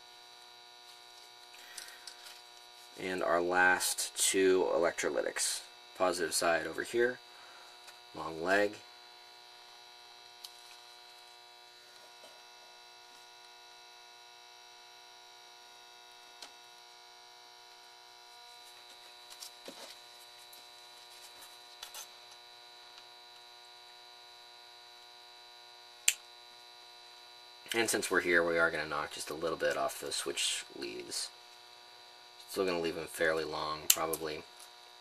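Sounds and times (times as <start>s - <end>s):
electrical mains hum: 0.0s - 35.0s
flush cutters snapping wire: 33.9s - 34.2s.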